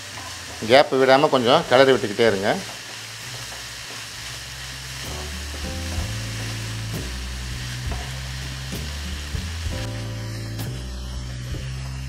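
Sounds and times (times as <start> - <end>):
food sizzling in a pan: 0.0 - 12.0
background music: 3.6 - 12.0.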